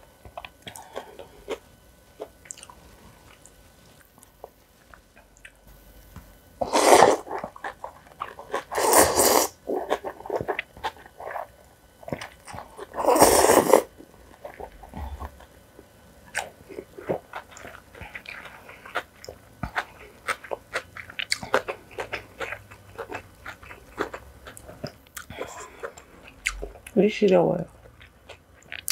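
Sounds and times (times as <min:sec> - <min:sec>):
wet chewing and crunching: 0:00.2 - 0:05.6, 0:06.7 - 0:28.9
person slurping noodles: 0:06.6 - 0:07.4, 0:08.5 - 0:10.2, 0:12.9 - 0:13.9.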